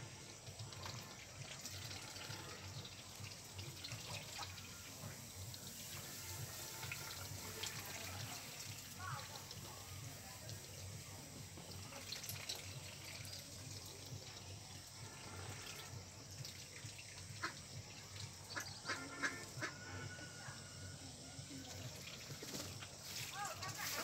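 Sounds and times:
faint hiss: 0.0s - 24.0s
ducks quacking: 18.5s - 20.1s.

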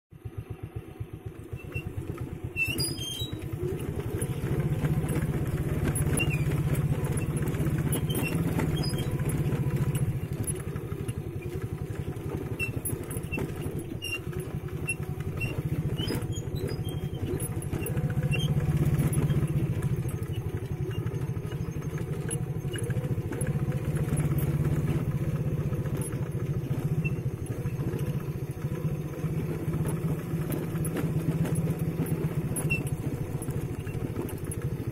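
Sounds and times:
motorcycle engine running: 0.1s - 34.9s
light clicks and rattles: 1.6s - 34.9s.

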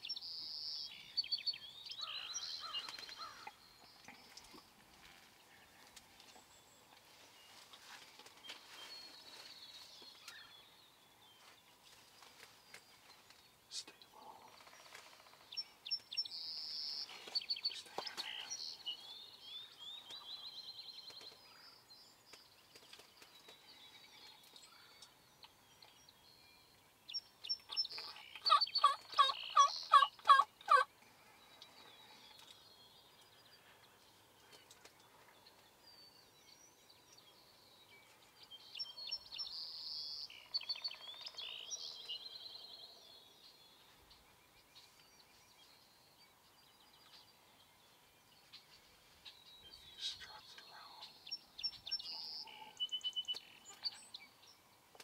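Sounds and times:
songbirds chirping and trilling: 0.0s - 55.0s
turkey gobbling: 28.4s - 30.9s.

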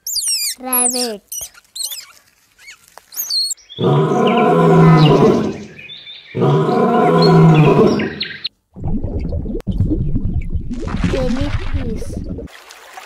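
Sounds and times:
lion roaring: 3.8s - 5.8s, 6.4s - 8.3s.

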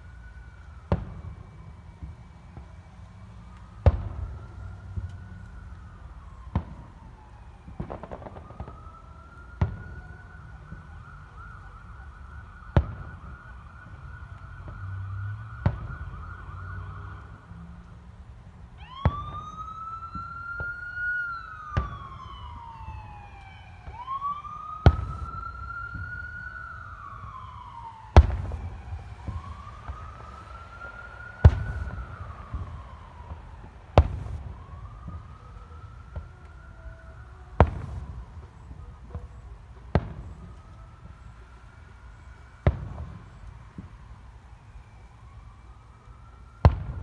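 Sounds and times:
siren wailing: 0.0s - 47.0s
fireworks bursting with bangs: 3.8s - 5.4s, 7.7s - 11.0s, 12.7s - 14.0s, 24.8s - 26.1s, 28.1s - 35.4s, 37.6s - 41.2s, 42.6s - 44.0s, 46.6s - 47.0s.

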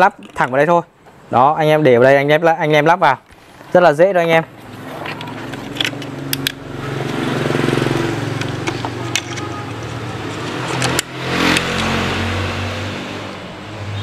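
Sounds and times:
plastic clicks: 5.0s - 7.2s, 8.3s - 11.9s
motorcycle engine running: 5.4s - 12.3s.

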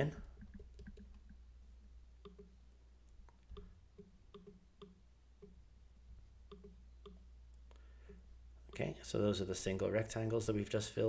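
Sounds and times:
computer mouse clicks: 0.3s - 1.4s, 2.2s - 2.6s, 3.2s - 5.6s, 6.5s - 8.9s.

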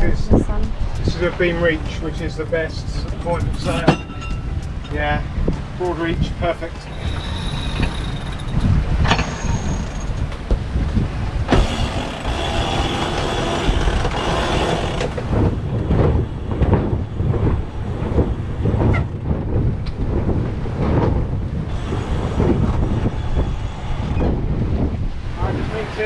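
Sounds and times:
water rushing along hull: 0.0s - 26.0s
wind buffeting microphone: 0.0s - 26.0s.

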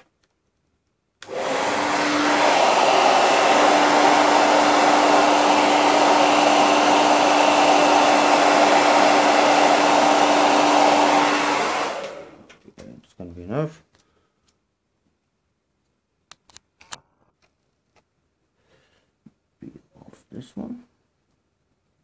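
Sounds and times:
hot-air blower rushing: 1.2s - 12.5s.

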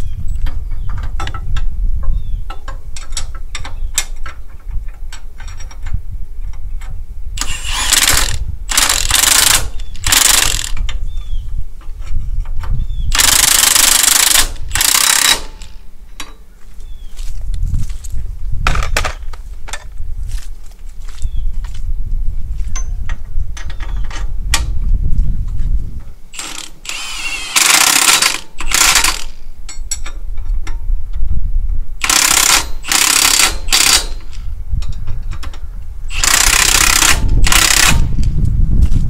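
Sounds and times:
impact wrench hammering bolts: 7.4s - 10.9s, 13.1s - 16.4s, 26.3s - 30.2s, 32.0s - 38.1s.

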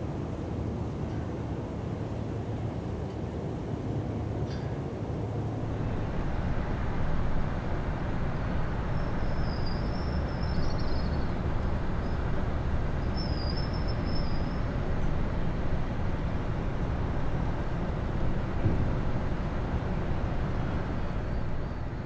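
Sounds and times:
heavy machinery engine rumble: 5.5s - 22.0s.

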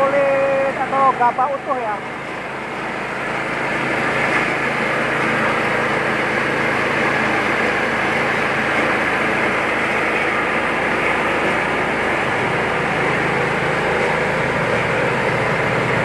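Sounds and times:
machine hum: 0.0s - 16.0s.

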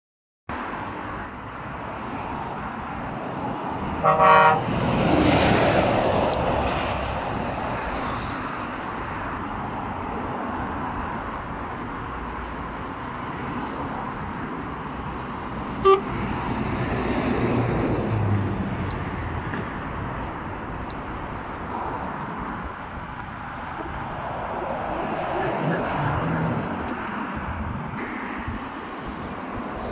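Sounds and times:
traffic passing on busy road: 0.5s - 29.9s
car horn toot: 4.0s - 4.7s, 15.8s - 16.1s.

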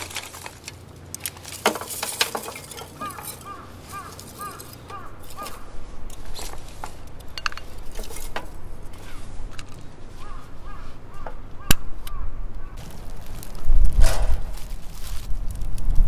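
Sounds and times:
sharp crack of wood: 0.0s - 5.6s, 11.2s - 15.9s
kindling sticks clicking and knocking: 0.0s - 9.9s.

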